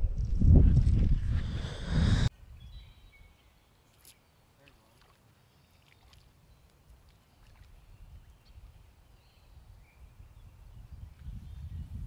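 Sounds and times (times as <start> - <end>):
low rumble: 0.0 - 2.3.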